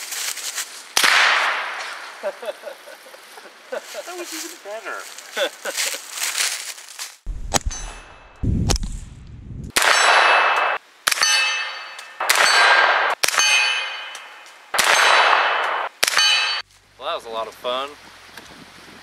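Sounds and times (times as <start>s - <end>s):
rifle shots with metallic ringing: 7.5s - 8.4s, 9.8s - 16.6s.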